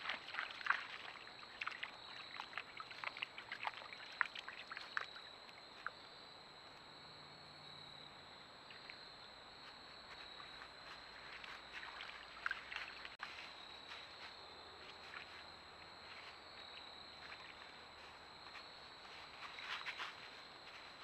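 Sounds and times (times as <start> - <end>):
hooves splashing in water: 0.0 - 6.0, 10.1 - 14.1, 16.1 - 18.3.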